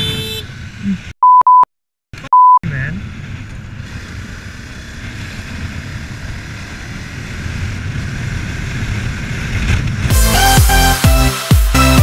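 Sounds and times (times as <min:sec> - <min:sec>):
motorcycle engine running: 0:03.0 - 0:10.9.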